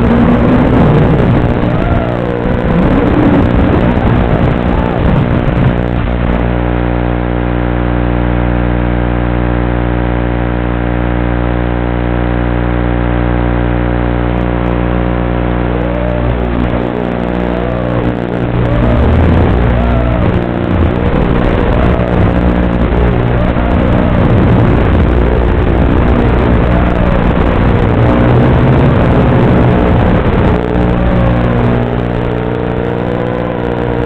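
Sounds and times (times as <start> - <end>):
drone motors humming and whining: 0.0 - 34.0.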